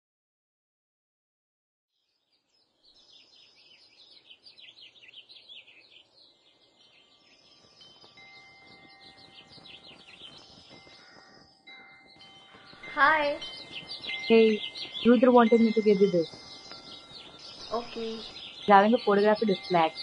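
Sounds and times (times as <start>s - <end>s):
small birds chirping: 2.0s - 20.0s
faint background noise: 2.6s - 20.0s
faint steady ringing tones: 5.7s - 20.0s.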